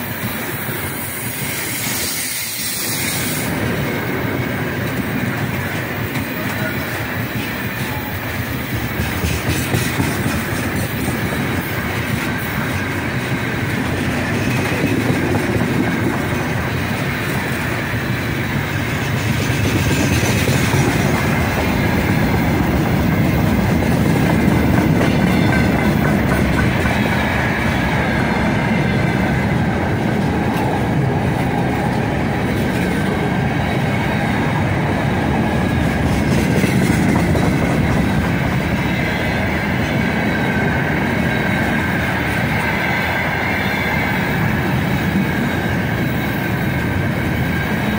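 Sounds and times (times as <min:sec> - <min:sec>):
train wheels rumbling on rail: 0:00.0 - 0:47.9
high wheel squeal: 0:01.0 - 0:03.6
wheels clacking over rail joints: 0:03.1 - 0:27.8.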